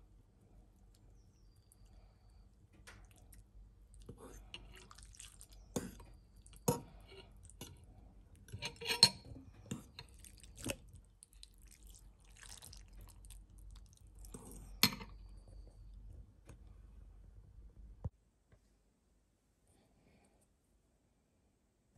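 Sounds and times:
cutlery clinking on ceramic bowl: 8.5 - 10.7, 14.8 - 15.2.

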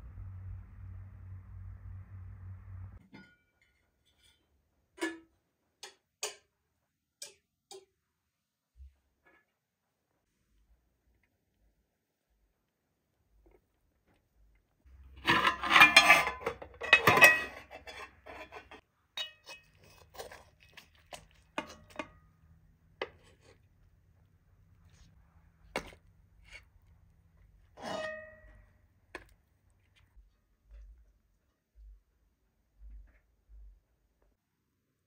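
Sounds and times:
metal ladle clinking: 15.0 - 22.4
spoon scraping rice on metal tray: 23.0 - 23.7.

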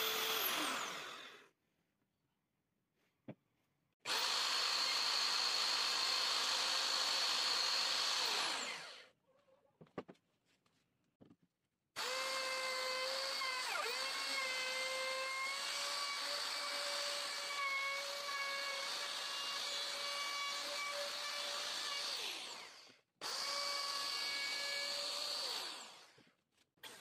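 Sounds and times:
router whining: 0.0 - 1.5, 4.1 - 9.1, 12.0 - 26.2.

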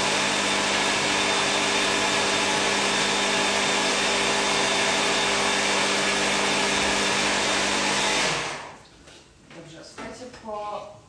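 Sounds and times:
blender motor running: 0.0 - 8.8.

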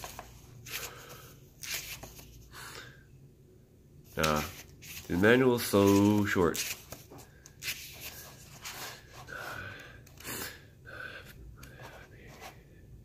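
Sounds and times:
paper rustling: 0.0 - 2.4, 4.1 - 9.1.

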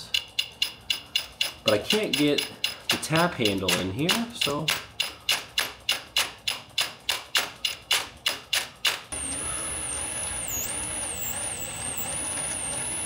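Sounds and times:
thin high whine: 9.2 - 13.0.

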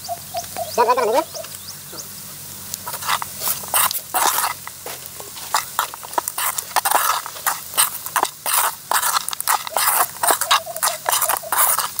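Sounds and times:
metal ladle scraping pot: 2.8 - 12.0.

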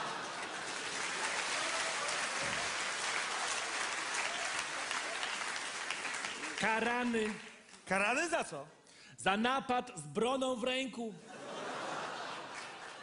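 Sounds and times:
audience applauding: 0.0 - 7.7, 12.1 - 13.0.

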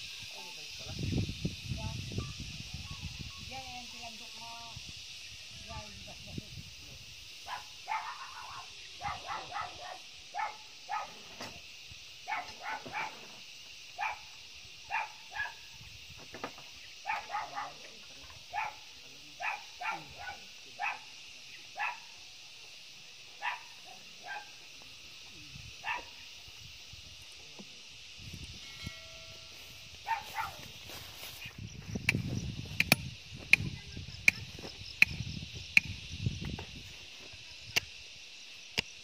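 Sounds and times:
high-pitched hiss: 0.0 - 39.0
dog barking: 7.5 - 11.2, 12.3 - 13.3, 14.0 - 14.3, 14.9 - 15.6, 17.0 - 17.9, 18.5 - 21.1, 21.8 - 22.1, 23.4 - 24.6, 25.8 - 26.2, 30.0 - 30.6.

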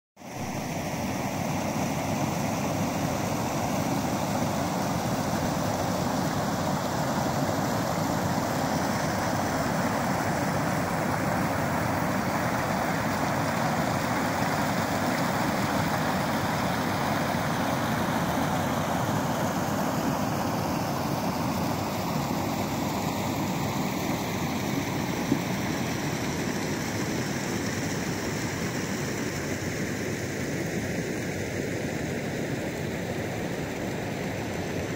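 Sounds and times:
stream flowing over rocks: 0.3 - 31.2.

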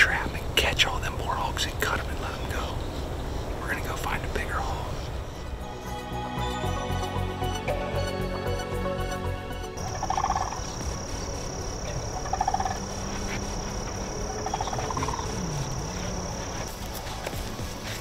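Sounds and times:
background music: 4.6 - 18.0
rattling animal calls: 9.8 - 18.0.

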